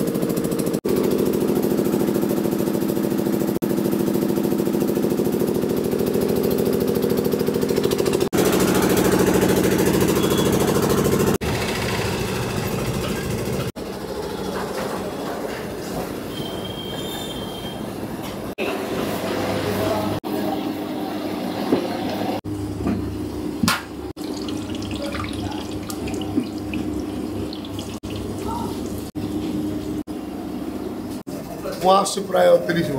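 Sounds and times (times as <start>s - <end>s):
engine humming with fast pulse: 0.0s - 14.4s.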